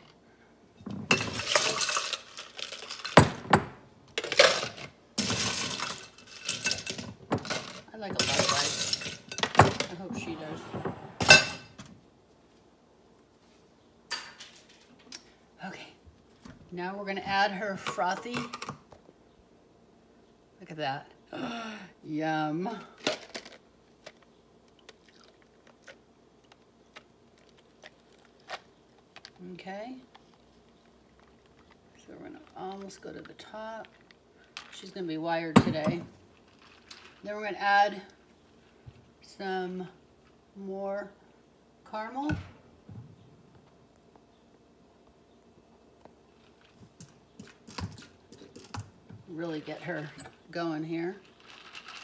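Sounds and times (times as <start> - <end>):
ice cubes clattering into cup: 1.1 - 3.3, 51.2 - 52.0.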